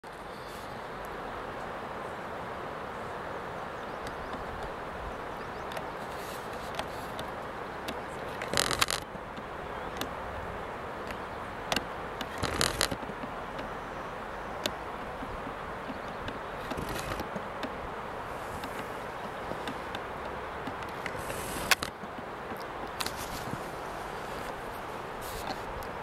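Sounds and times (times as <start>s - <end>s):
sharp clicks: 6.5s - 10.2s, 11.0s - 13.7s, 18.6s - 23.5s.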